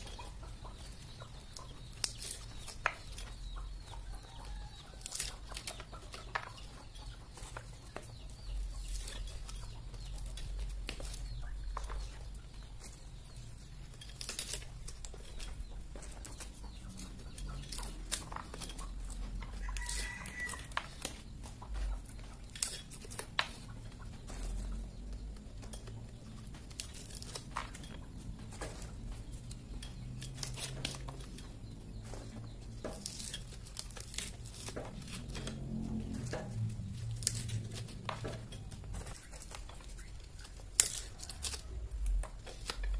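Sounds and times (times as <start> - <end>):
chickens clucking: 0.0 - 42.9
nut husker cracking husks: 8.6 - 42.9.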